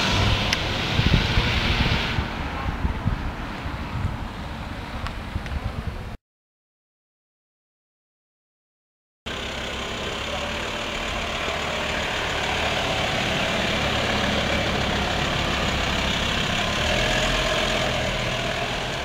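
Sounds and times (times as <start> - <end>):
engine running steadily: 9.3 - 19.0.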